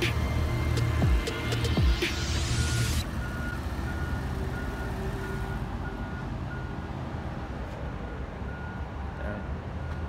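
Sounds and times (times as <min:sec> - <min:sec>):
high electronic warning beep: 0:01.0 - 0:06.8.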